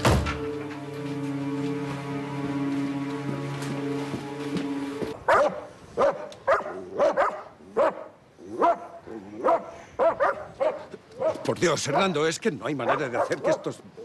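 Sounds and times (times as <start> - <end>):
steady music: 0.0 - 5.2
dogs barking: 5.2 - 12.2, 12.8 - 14.0.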